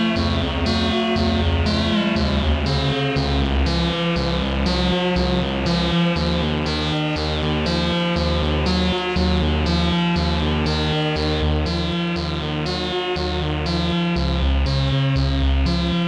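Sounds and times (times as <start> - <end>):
synthesizer plucky note sequence: 0.0 - 14.5.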